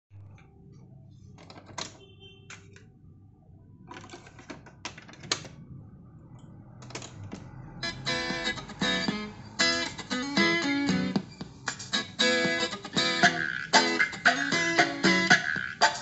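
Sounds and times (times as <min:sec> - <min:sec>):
guitar music from tape: 0:07.7 - 0:16.0.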